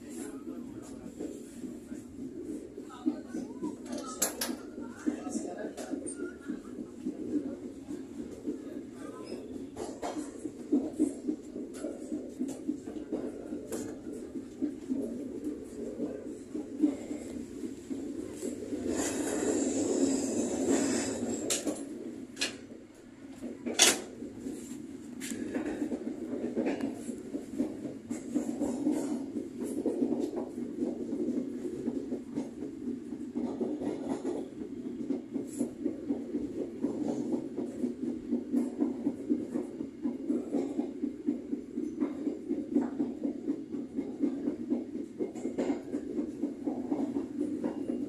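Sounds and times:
clicks of train wheels: 0.0s - 48.0s
train wheels rumbling on rails: 0.0s - 48.0s.

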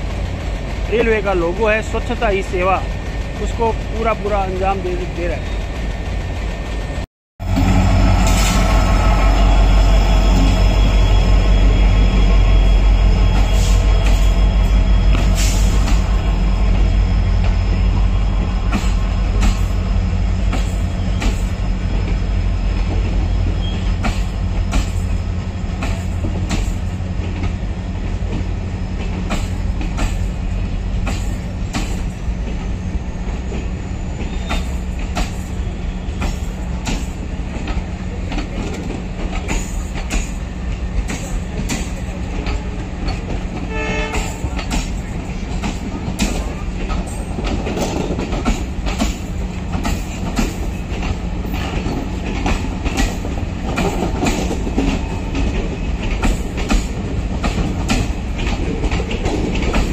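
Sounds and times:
train coaches rumbling past: 0.0s - 59.9s
wheels clacking over rail joints: 13.3s - 59.9s.

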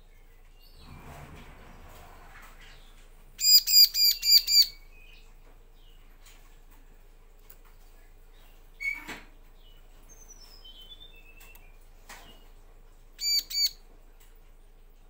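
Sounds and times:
bird chirping: 2.7s - 6.2s, 7.8s - 12.6s, 13.2s - 13.8s.

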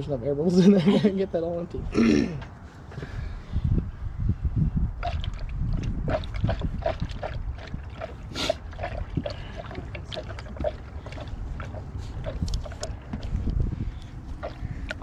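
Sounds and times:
liquid gurgling down a funnel: 5.0s - 13.4s, 14.3s - 15.0s.

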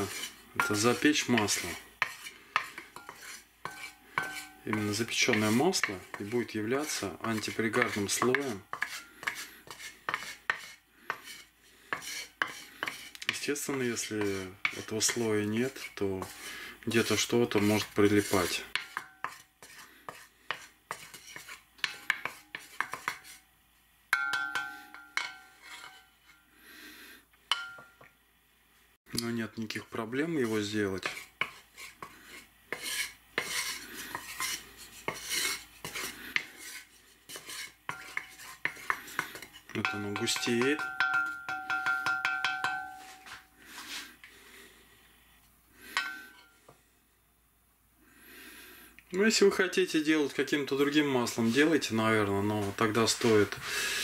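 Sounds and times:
wooden spatula scraping cast iron: 0.0s - 23.4s, 24.2s - 26.5s, 29.6s - 44.4s, 45.9s - 46.6s, 50.3s - 54.0s
ringing knock on cast iron: 24.2s - 25.5s, 39.9s - 43.1s.

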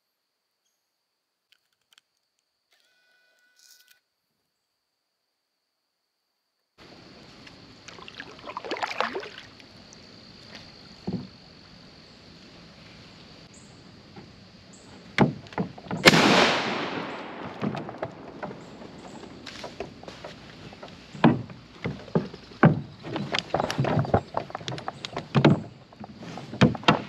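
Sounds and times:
water splashing: 7.8s - 11.0s
paddle knocking on hull: 17.4s - 27.0s.

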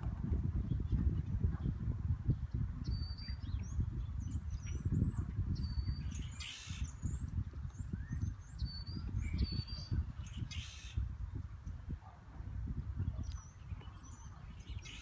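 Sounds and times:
birds chirping: 0.6s - 11.3s, 13.0s - 15.0s
harsh bird calls: 5.6s - 7.3s, 8.1s - 11.0s.

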